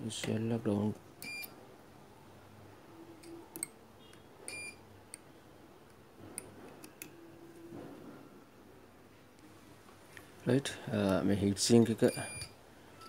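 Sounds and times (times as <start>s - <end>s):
multimeter high beeps: 12.1s - 13.0s.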